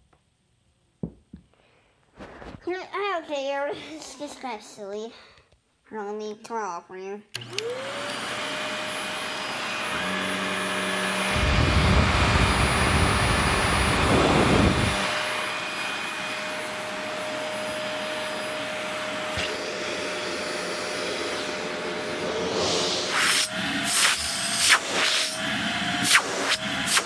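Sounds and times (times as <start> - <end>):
vacuum cleaner running: 7.4 - 27.0.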